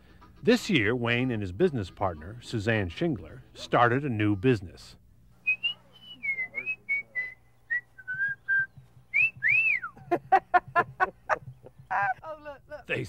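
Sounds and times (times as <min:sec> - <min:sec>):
emus whistling calls: 0:05.4 - 0:10.1.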